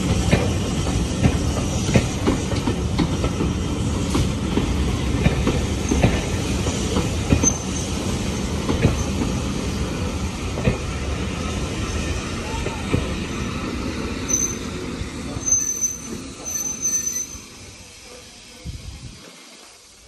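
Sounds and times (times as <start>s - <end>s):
wheels clicking on rail joints: 0.0s - 9.5s
train coaches rumbling past: 0.0s - 20.0s.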